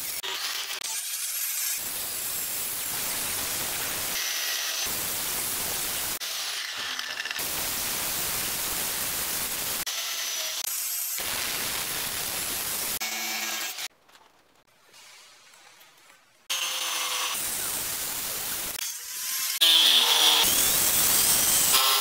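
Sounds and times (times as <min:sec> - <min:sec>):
cut-off disc grinding steel: 0:18.7 - 0:22.0.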